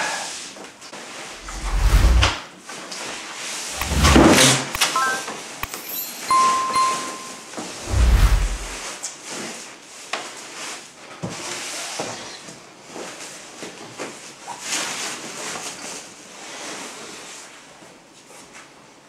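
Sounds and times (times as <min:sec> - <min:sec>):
short sharp clicks: 0:05.6 - 0:05.9.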